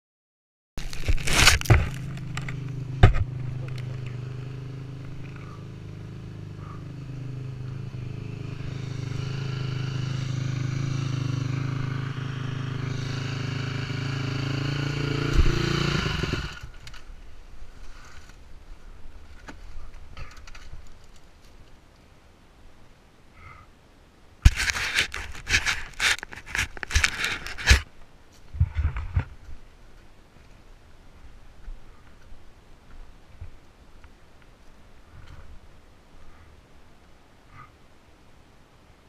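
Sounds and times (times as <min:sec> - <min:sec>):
dirt bike engine running: 0:00.8 - 0:16.8
heavy thump of bike crashing: 0:01.0 - 0:03.4
faint rustles and knocks: 0:24.5 - 0:37.2.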